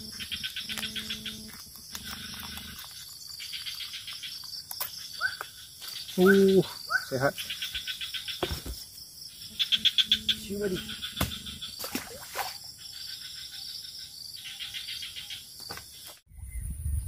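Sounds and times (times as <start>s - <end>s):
insects chirping in trills: 0.0s - 17.0s.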